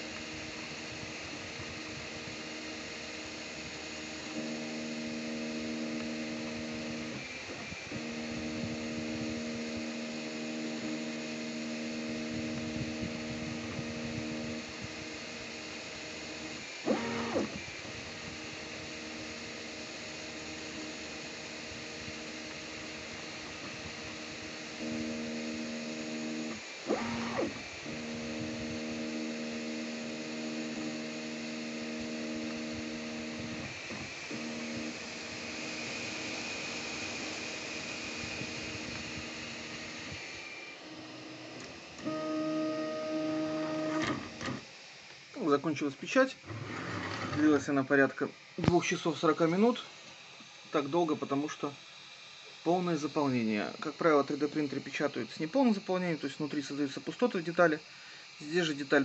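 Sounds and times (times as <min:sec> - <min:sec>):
constant hiss: 0:00.0 - 0:59.0
stepper motors whining: 0:00.0 - 0:59.0
steady hiss: 0:32.6 - 0:59.0.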